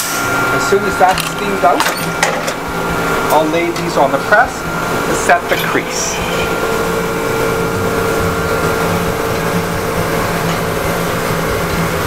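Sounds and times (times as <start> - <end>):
pressing machinery hum and hiss: 0.0 - 12.0
mid-pitched tone: 5.5 - 10.2.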